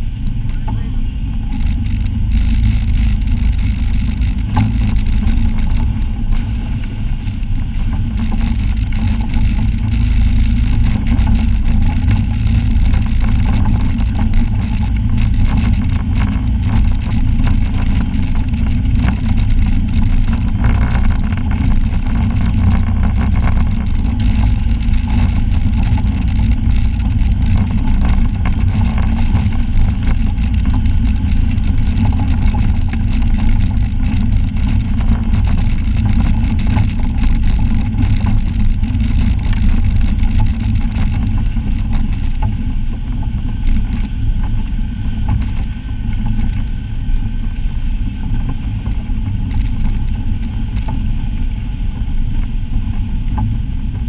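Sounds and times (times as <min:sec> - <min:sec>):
clicks and knocks from rough ground: 0:00.0 - 0:47.4, 0:48.0 - 0:54.0
vehicle engine running: 0:00.0 - 0:54.0
vehicle body rattling: 0:00.3 - 0:46.8.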